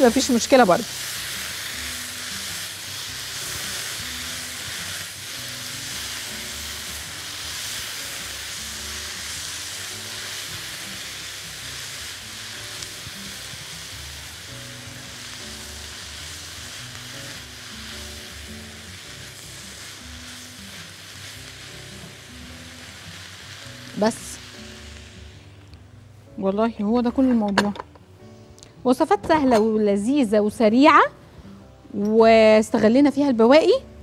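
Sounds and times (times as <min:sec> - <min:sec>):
food sizzling in a wok: 0:00.0 - 0:25.7
soft background music: 0:00.0 - 0:34.0.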